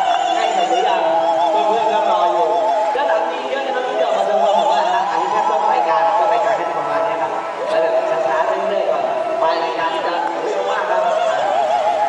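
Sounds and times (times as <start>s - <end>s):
opera-like high singing voice: 0.0s - 12.0s.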